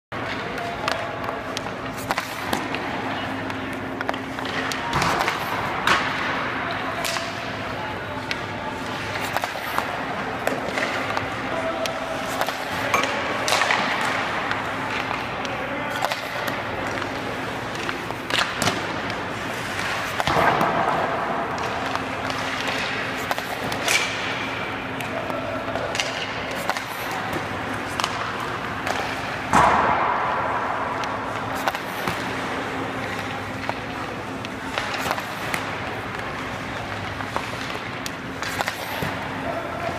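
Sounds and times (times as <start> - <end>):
hockey stick hitting puck: 0.2 - 39.9
puck hitting goalie gear: 19.8 - 24.3.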